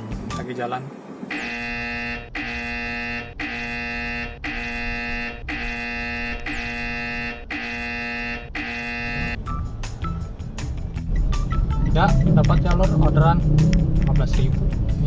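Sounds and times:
phone buzzing alert tone: 1.3 - 9.4.

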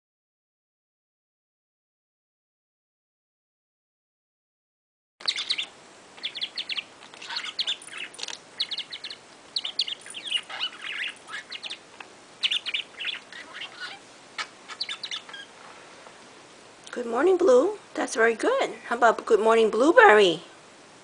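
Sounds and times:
budgerigars chattering: 5.2 - 15.6.

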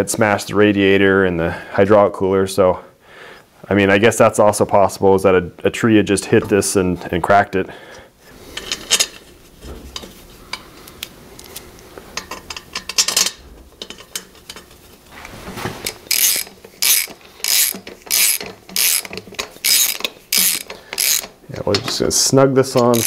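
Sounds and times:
hand ratchet clicking: 15.9 - 21.4, 22.7 - 23.0.

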